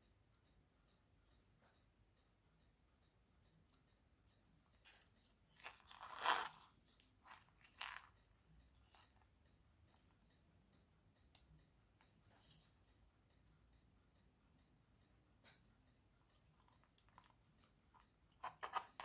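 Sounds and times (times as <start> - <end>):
faint regular ticking: 0.0 - 19.0
crackly scrapes and rustles: 5.6 - 8.1.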